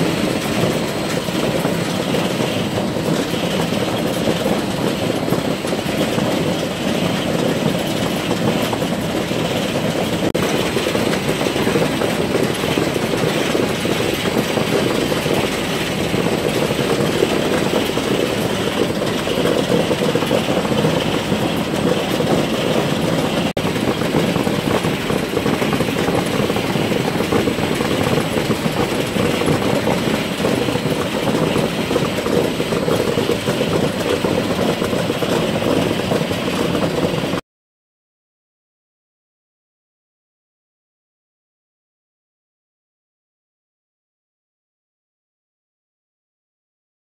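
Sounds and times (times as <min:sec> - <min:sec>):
conveyor belts and motors: 0:00.0 - 0:37.4.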